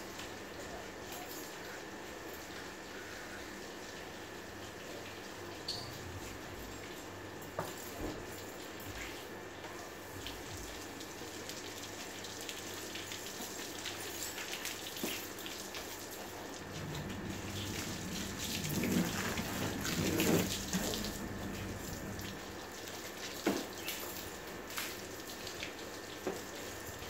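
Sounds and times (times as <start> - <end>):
water spraying from hose: 10.3 - 27.0
water dripping on pavement: 22.2 - 26.7.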